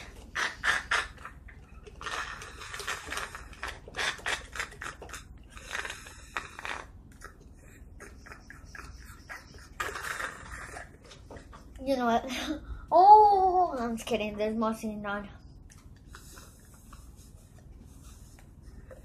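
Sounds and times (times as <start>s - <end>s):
slurping through a plastic straw: 0.0s - 12.0s.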